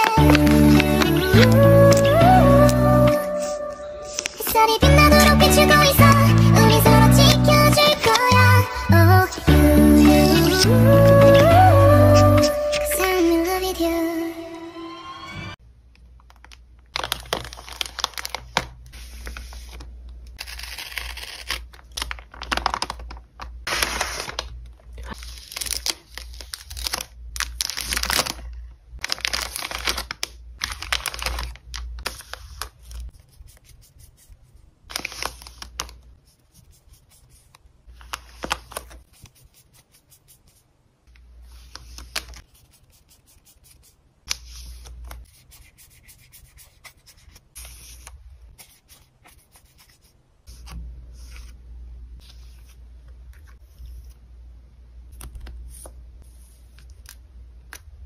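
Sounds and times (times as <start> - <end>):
paper mailer tearing: 0.0 - 2.0, 23.7 - 24.5
plastic sleeves crinkling: 0.0 - 2.2, 16.1 - 33.2, 34.9 - 36.2.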